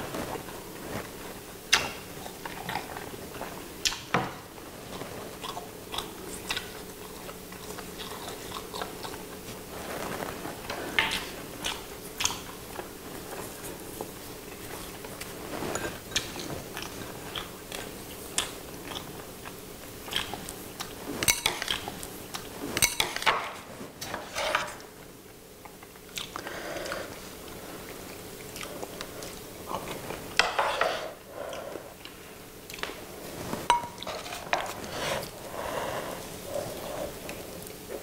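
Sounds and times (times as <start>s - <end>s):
people chewing and crunching: 0.0s - 38.0s
utensils clicking on bowls: 21.2s - 21.9s, 22.8s - 23.4s.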